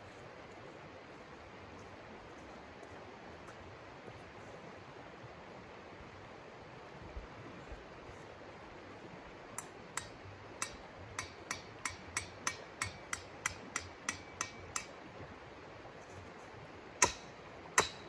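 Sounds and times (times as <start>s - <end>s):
mallet striking tent stake: 9.6s - 15.0s, 17.0s - 18.0s.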